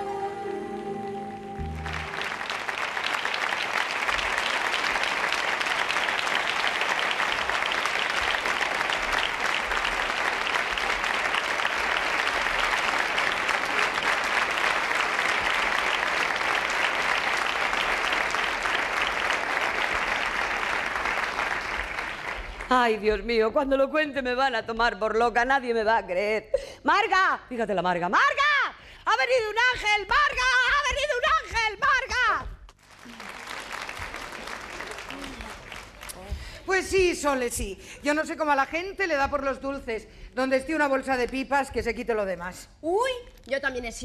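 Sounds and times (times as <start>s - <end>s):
held musical chord: 0.0s - 2.4s
audience applauding: 0.0s - 22.7s, 32.8s - 36.9s.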